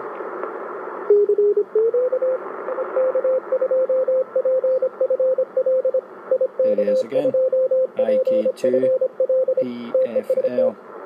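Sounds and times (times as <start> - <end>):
radio receiver hiss: 0.0 - 1.2
morse code beeps: 1.1 - 10.7.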